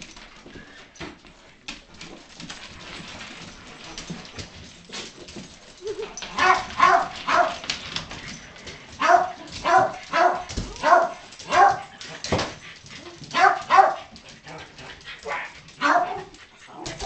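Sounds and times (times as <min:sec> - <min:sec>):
dog yelping barks: 0:06.3 - 0:07.6, 0:09.0 - 0:11.9, 0:13.3 - 0:14.1, 0:15.2 - 0:16.3.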